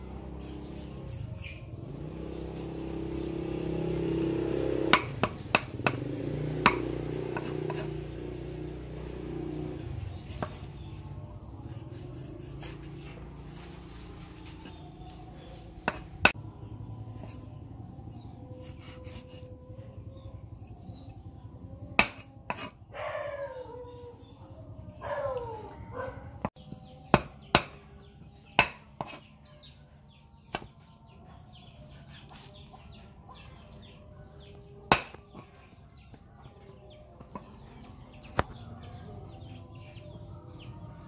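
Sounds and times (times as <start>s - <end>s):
cleaver chopping on wooden block: 4.6s - 8.0s, 15.8s - 16.4s, 21.9s - 22.8s, 26.5s - 29.3s, 34.9s - 35.5s.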